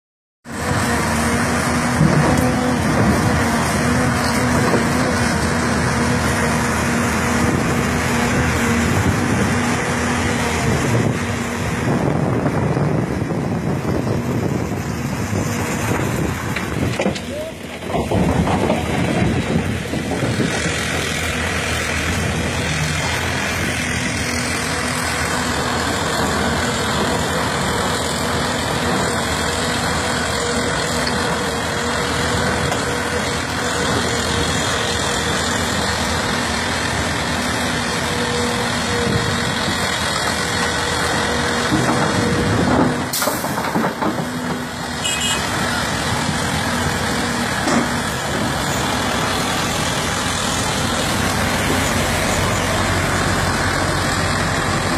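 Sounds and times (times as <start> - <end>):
diesel excavator engine drone: 0.4 - 54.9.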